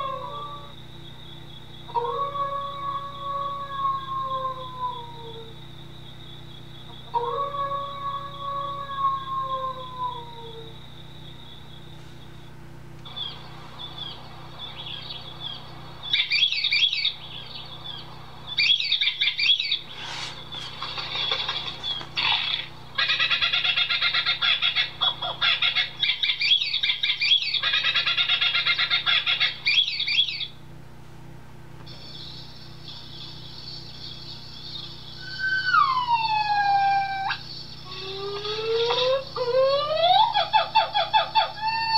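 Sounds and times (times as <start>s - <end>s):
gibbon whooping calls: 18.6s - 30.5s, 35.2s - 41.9s.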